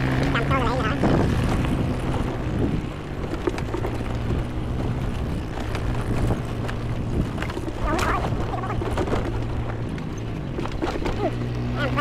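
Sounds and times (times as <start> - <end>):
wind on microphone: 0.0 - 10.7
vehicle engine running: 0.0 - 12.0
knocks from rough ground: 1.1 - 11.7.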